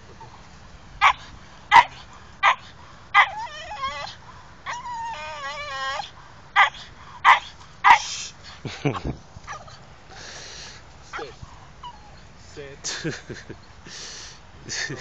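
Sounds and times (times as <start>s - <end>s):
dog barking: 1.0s - 2.6s, 6.6s - 8.1s
dog whining: 3.2s - 8.0s, 11.1s - 12.3s.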